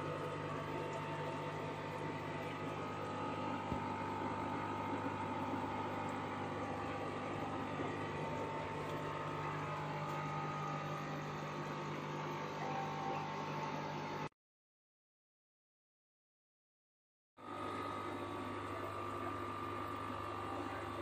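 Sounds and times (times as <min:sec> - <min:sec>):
filters bubbling: 0:00.0 - 0:12.5, 0:17.6 - 0:21.0
aquarium air pump hum: 0:00.0 - 0:14.3, 0:17.4 - 0:21.0.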